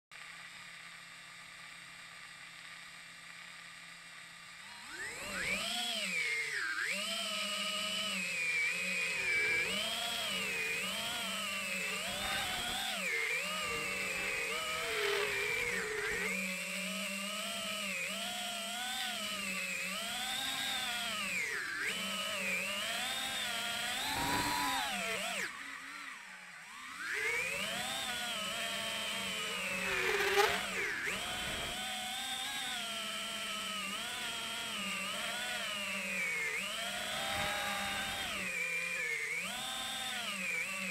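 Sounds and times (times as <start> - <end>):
drone motors whining: 0.4 - 40.9.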